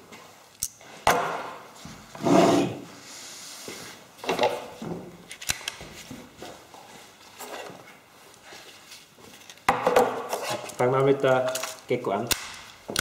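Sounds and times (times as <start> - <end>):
scraping on wood: 2.1 - 2.8.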